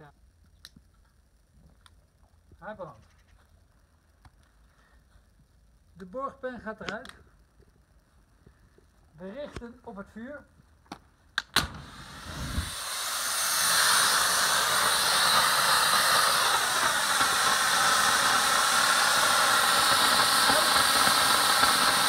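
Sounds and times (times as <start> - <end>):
fire extinguisher hissing spray: 11.6 - 22.0.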